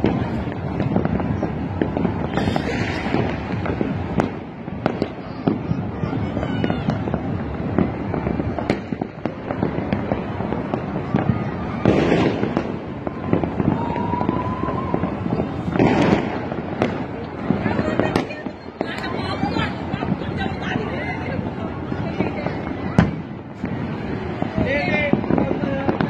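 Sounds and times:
firework whistle: 0.0 - 19.8
fireworks crackling and banging: 0.0 - 26.0.

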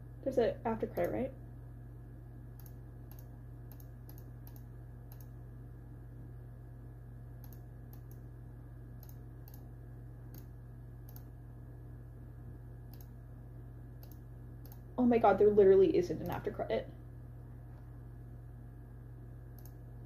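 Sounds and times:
low electrical hum: 0.0 - 20.0
faint irregular clicks: 2.5 - 5.4, 7.4 - 8.3, 9.0 - 9.7, 10.3 - 11.3, 12.9 - 13.2, 14.0 - 14.9, 19.5 - 19.8.

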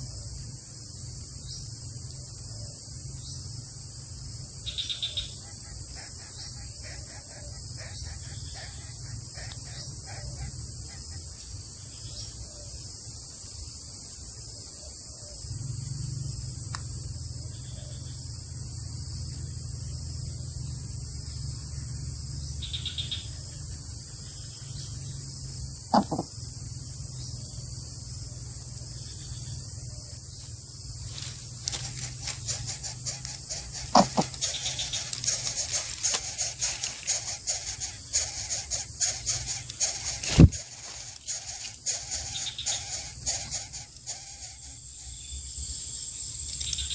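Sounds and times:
crackling dry leaf nest: 31.0 - 43.2.

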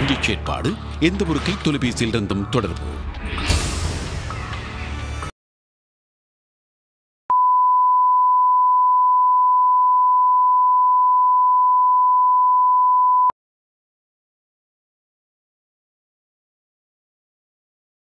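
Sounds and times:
steady sine test tone: 7.3 - 13.3.

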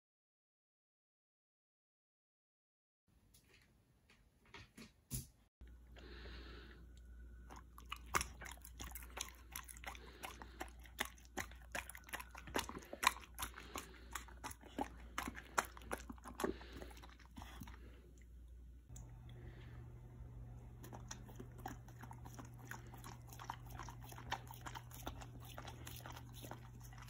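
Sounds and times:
dog chewing wetly: 7.4 - 19.1, 20.6 - 27.0.

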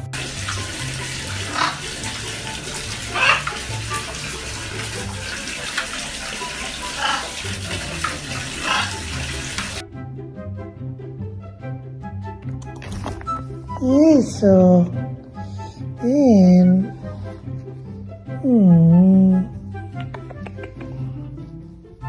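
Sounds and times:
background music: 0.0 - 22.0
bird splashing in water: 0.1 - 9.8
water pouring into plastic bucket: 0.1 - 9.8.

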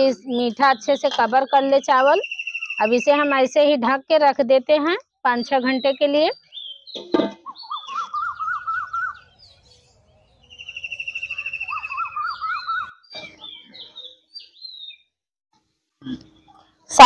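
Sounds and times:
birds chirping: 0.0 - 3.5, 5.3 - 15.2.

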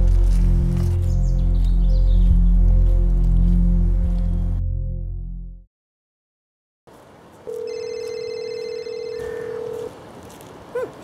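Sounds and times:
phone ringing: 7.5 - 9.9.

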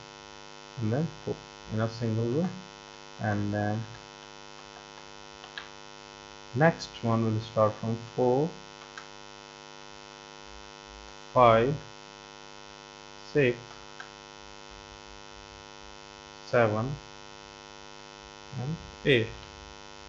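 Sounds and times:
electrical mains hum: 0.0 - 20.0
person speaking: 0.8 - 2.6, 3.2 - 4.0, 6.6 - 8.5, 11.4 - 11.8, 13.3 - 13.7, 16.5 - 17.0, 18.6 - 19.5.

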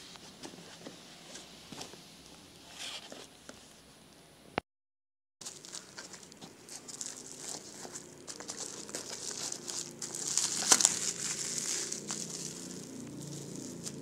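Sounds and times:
bubble wrap crinkling: 5.4 - 14.0
cardboard packaging rustling: 5.4 - 14.0.

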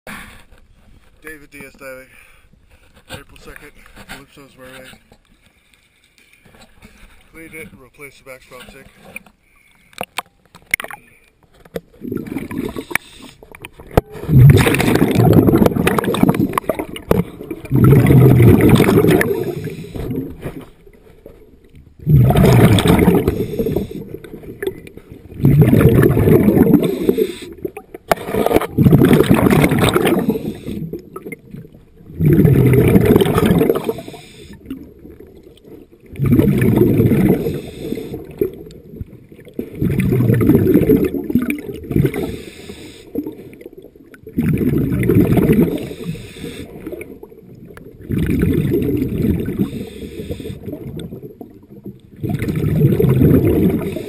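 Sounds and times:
exhaled breath bubbling underwater: 12.0 - 20.6, 22.0 - 54.0.

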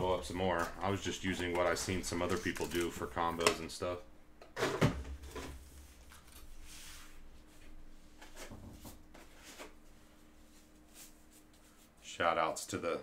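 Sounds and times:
soft rustle of card packs: 0.0 - 3.4.

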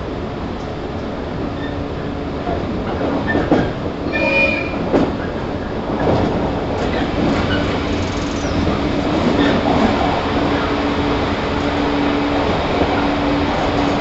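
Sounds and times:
train rumble and hum: 0.0 - 14.0
rail-joint clacks: 2.4 - 14.0
wheel squeal: 4.1 - 4.8, 7.4 - 8.7.

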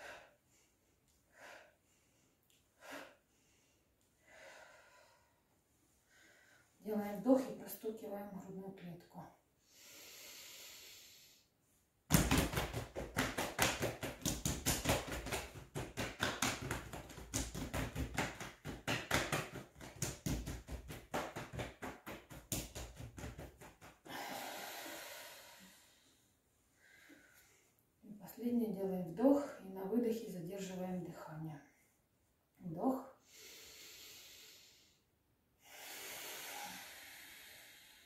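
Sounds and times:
hands tapping on chest: 12.1 - 24.1
breath in through nose: 35.6 - 38.0.

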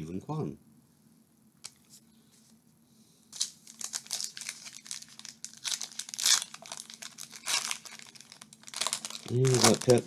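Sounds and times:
foil wrapper crinkling: 3.3 - 10.0.

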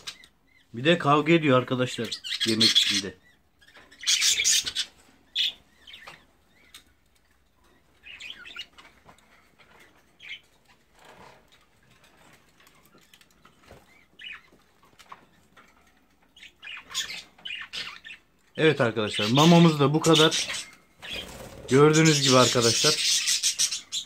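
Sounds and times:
budgerigars chirping: 0.0 - 7.0, 7.7 - 8.9, 9.6 - 10.8, 12.6 - 15.5, 16.3 - 24.0
wing flapping: 21.0 - 22.0.

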